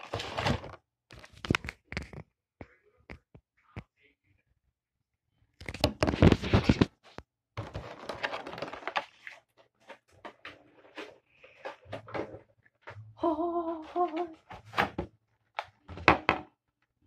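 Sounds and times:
plastic packaging rustling: 7.6 - 12.4.

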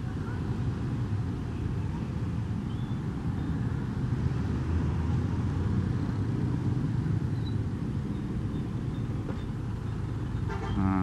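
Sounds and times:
road and traffic noise: 0.0 - 11.0.

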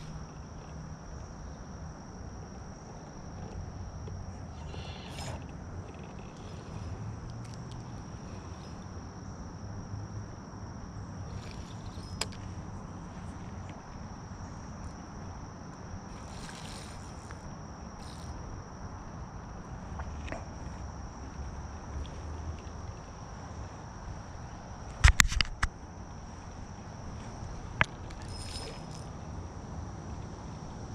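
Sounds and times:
high-pitched insect drone: 0.0 - 24.9, 26.2 - 30.9
sharp click: 24.9 - 25.7.

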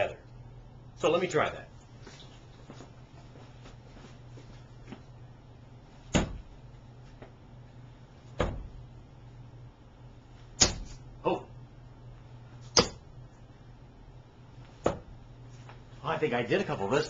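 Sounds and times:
darts thudding into dartboard: 6.1 - 6.5, 8.3 - 8.8, 10.6 - 11.0, 12.6 - 13.1, 14.8 - 15.1.

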